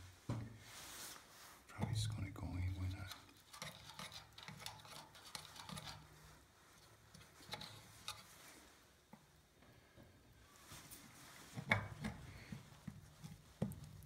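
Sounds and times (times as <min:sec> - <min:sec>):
small clicks and taps on pipe: 0:03.0 - 0:06.1, 0:06.8 - 0:08.3, 0:11.6 - 0:14.0.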